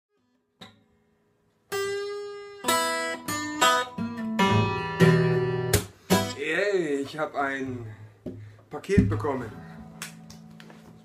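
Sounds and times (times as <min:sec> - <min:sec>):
acoustic guitar picked notes: 0:00.1 - 0:11.0.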